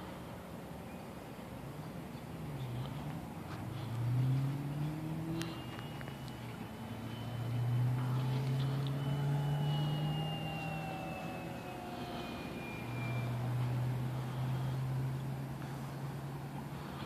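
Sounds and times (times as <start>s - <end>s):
steady low hum: 0.0s - 17.0s
model plane motor whining: 4.5s - 15.5s.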